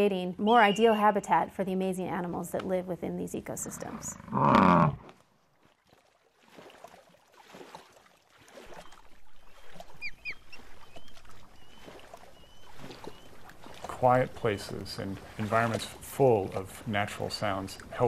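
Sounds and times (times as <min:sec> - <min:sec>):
osprey whistled calls: 0:00.4 - 0:01.2, 0:08.8 - 0:13.8
bison deep grunt: 0:03.8 - 0:05.0.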